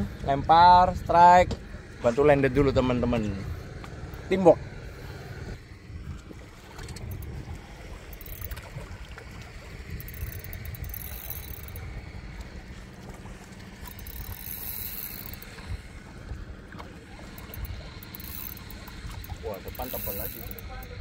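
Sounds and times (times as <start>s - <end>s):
wind rumbling on microphone: 0.0s - 21.0s
water washing against hull: 5.0s - 21.0s.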